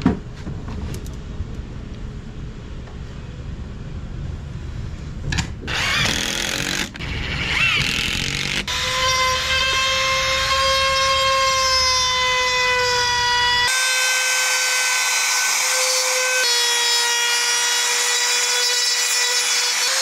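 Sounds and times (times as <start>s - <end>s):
drill boring into wood: 5.7s - 20.0s
power tool whining: 5.7s - 20.0s.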